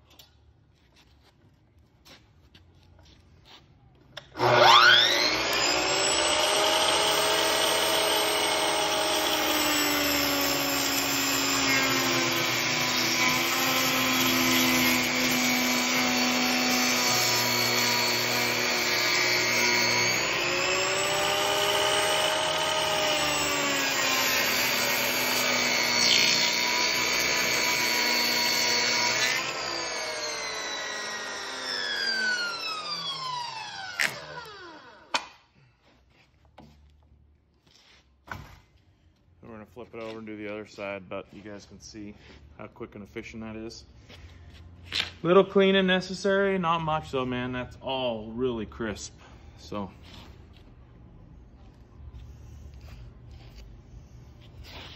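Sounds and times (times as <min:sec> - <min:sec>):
electric cutter motor whining: 0:04.2 - 0:35.3
wood being cut: 0:04.2 - 0:35.3.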